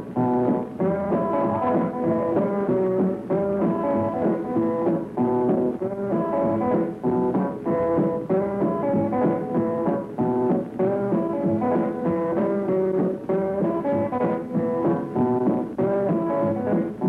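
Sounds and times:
country swing band playing: 0.0 - 17.0.

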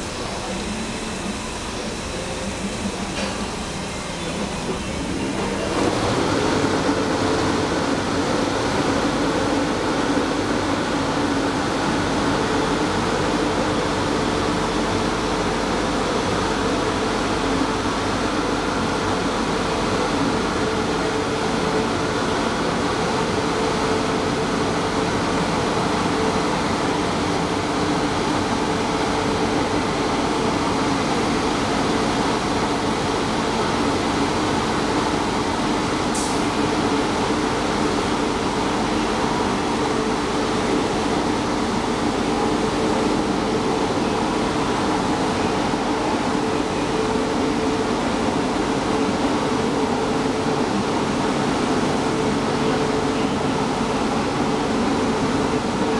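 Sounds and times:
car wash machine whirring: 0.0 - 12.1.

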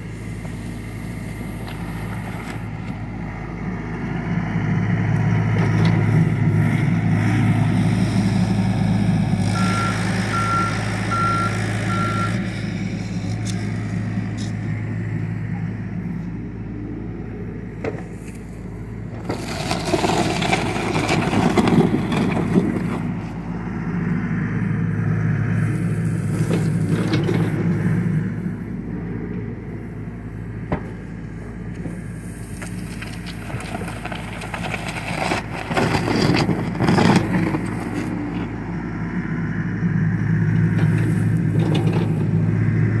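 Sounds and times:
excavator diesel engine running: 0.0 - 43.0
bucket scraping through soil: 19.2 - 23.1.

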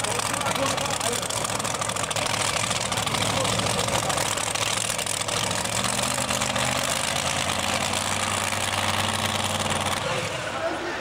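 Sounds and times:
tractor engines idling: 0.0 - 11.0.

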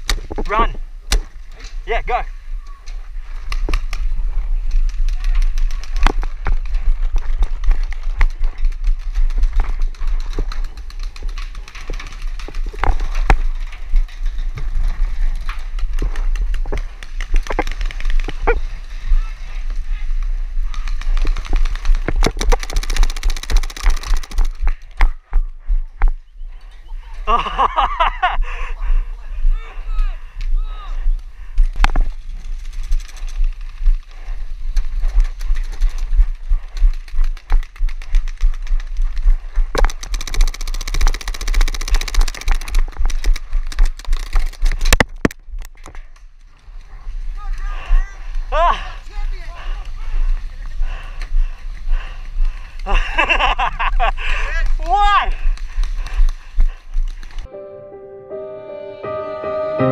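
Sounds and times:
paintball markers firing: 21.2 - 25.2, 39.7 - 46.0.

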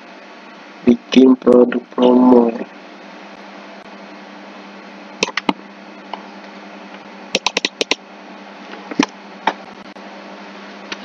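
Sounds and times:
steady low hum and hiss: 0.0 - 11.0
computer keyboard and mouse clicks: 7.3 - 8.0.

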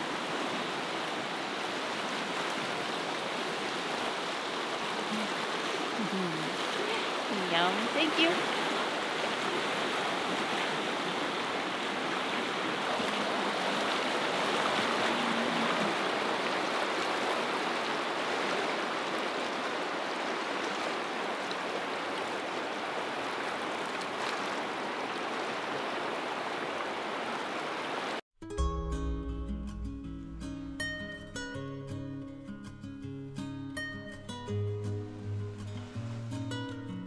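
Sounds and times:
river rushing: 0.0 - 28.2
acoustic guitar music: 28.4 - 37.0.

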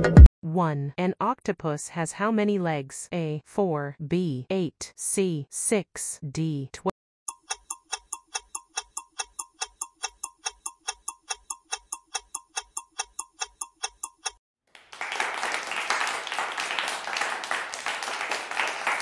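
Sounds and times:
clock ticking countdown: 7.3 - 14.4
applause: 14.7 - 19.0.

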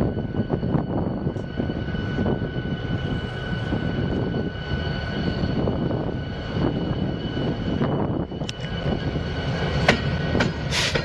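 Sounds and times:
diesel locomotive engine rumble: 0.0 - 11.0
steady high whine: 0.0 - 11.0
wind buffeting microphone: 0.0 - 11.0.

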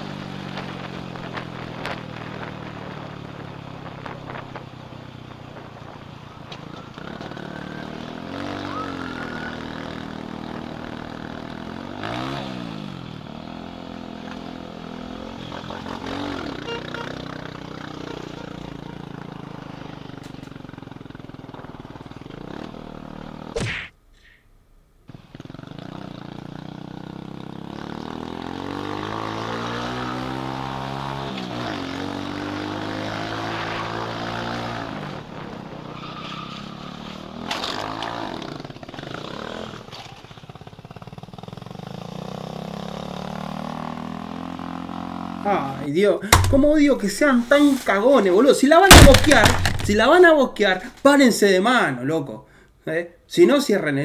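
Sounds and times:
small motorcycle engine revving: 6.9 - 23.6, 25.1 - 45.8
sudden loud noise: 48.9 - 50.4.

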